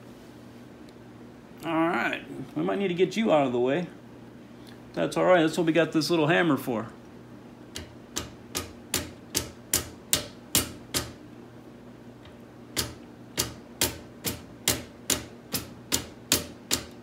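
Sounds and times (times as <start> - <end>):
rubber mallet tapping: 7.8 - 11.2, 12.8 - 17.0.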